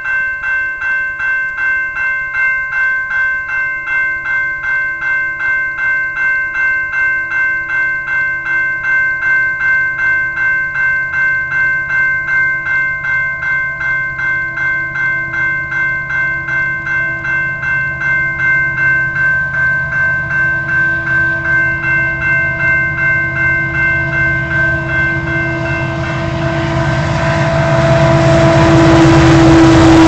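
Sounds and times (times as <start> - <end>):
level crossing warning bell: 0.0 - 30.0
train rumble: 15.2 - 30.0.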